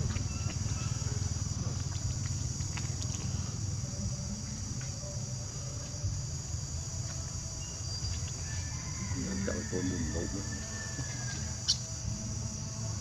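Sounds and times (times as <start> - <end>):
low rumble: 0.0 - 8.4
insect chorus chirring: 0.0 - 13.0.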